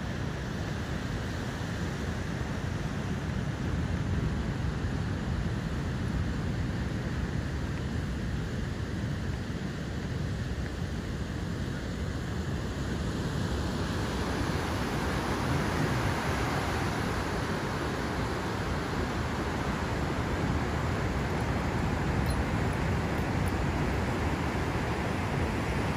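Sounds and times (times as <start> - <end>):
wind rumbling on microphone: 0.0 - 25.9
ocean surf breaking: 13.6 - 25.9.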